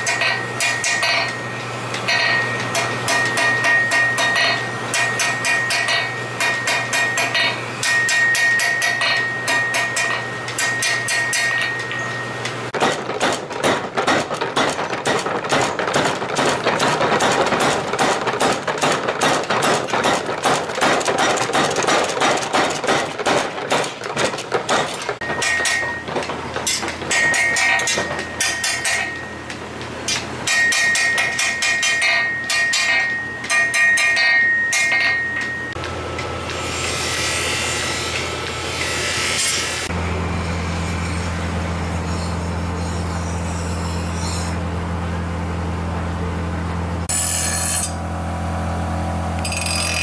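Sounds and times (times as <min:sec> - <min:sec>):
hammer ringing on anvil: 0:00.0 - 0:01.5, 0:02.1 - 0:12.5, 0:25.2 - 0:26.1, 0:26.7 - 0:29.5, 0:30.1 - 0:35.8, 0:49.4 - 0:50.0
power hammer pounding: 0:12.7 - 0:29.4.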